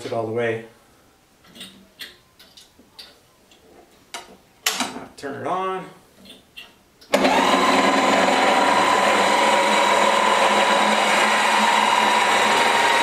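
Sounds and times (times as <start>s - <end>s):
electric lift motor whine: 7.1s - 13.0s.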